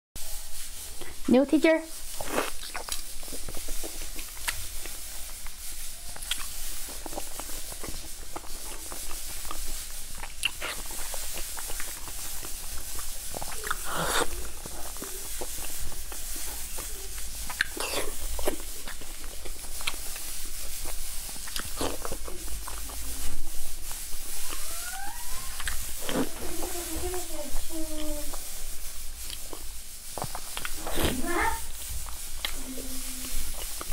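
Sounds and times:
steady hiss: 0.2 - 33.9
wet chewing and lip smacking: 2.1 - 23.0, 24.2 - 26.4, 29.2 - 31.2, 32.0 - 32.6.

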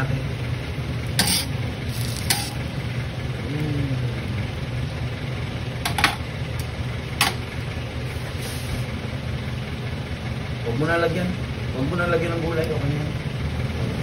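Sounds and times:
low machine hum: 0.0 - 14.0.

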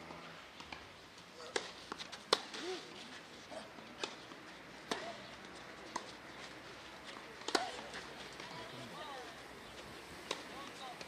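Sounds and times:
tennis ball bouncing on clay: 1.4 - 2.6, 3.9 - 6.3, 7.1 - 9.3, 10.2 - 11.0
tennis ball hit by racket: 1.4 - 2.8, 4.0 - 5.2, 7.4 - 8.5, 10.2 - 10.8.

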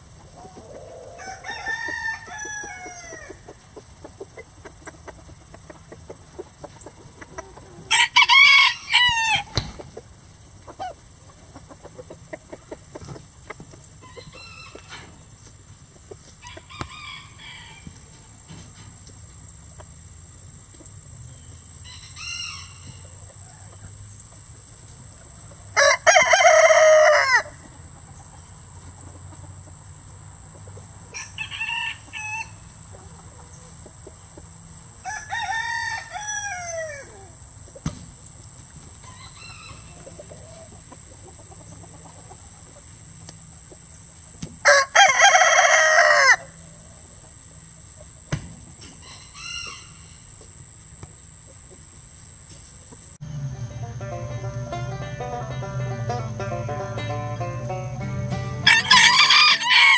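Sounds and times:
chickens calling: 0.0 - 59.9
rooster crowing: 0.5 - 3.5, 7.8 - 9.6, 16.4 - 18.0, 21.8 - 23.6, 25.7 - 27.6, 31.1 - 32.6, 35.0 - 37.3, 44.6 - 46.6, 49.0 - 50.2, 53.2 - 59.9
steady high-pitched tone: 53.2 - 59.0.

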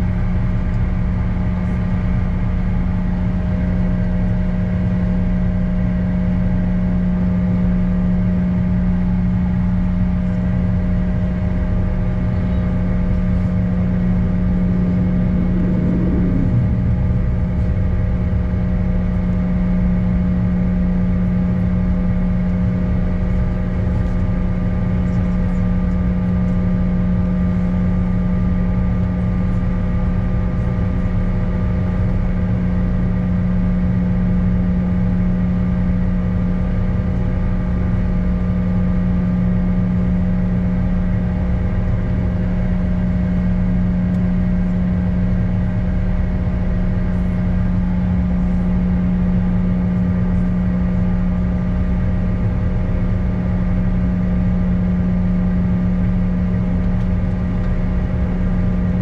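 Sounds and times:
low cabin rumble: 0.0 - 59.0
jet engines humming: 9.2 - 33.2.

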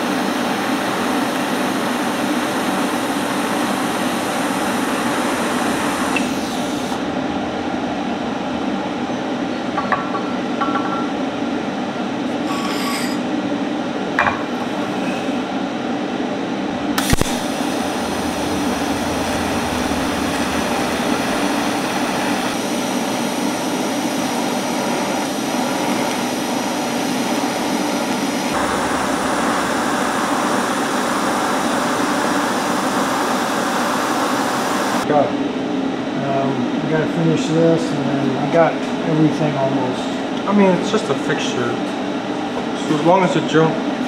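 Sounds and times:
welding arc hissing: 0.0 - 7.1, 16.9 - 35.0
low hum: 5.0 - 9.8, 16.1 - 23.9, 28.5 - 32.9
welding arc crack: 17.0 - 35.0.

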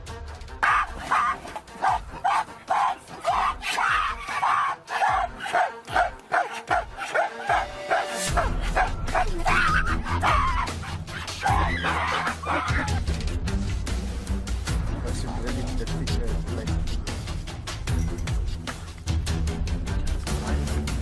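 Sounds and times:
background music: 0.0 - 21.0
short repeated barking calls: 0.6 - 12.8.

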